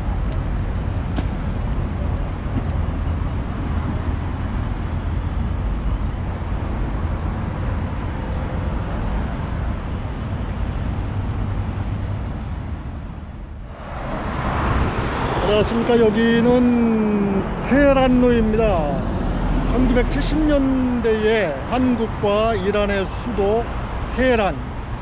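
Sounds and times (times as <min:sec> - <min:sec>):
city street traffic: 0:00.0 - 0:25.0.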